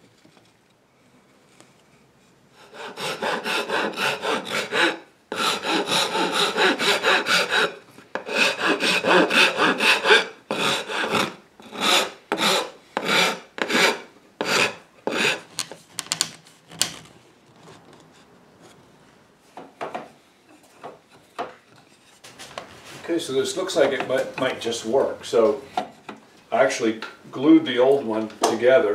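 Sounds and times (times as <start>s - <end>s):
wood rasp scraping wood: 2.6s - 15.5s.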